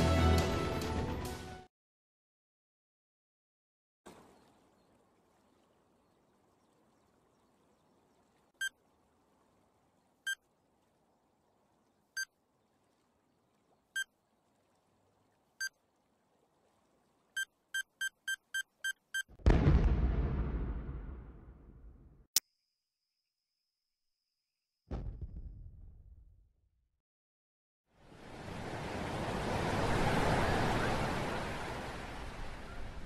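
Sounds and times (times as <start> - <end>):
electronic timer beeps: 17.4 - 19.3
loud explosion: 19.4 - 22.2, 24.9 - 26.2.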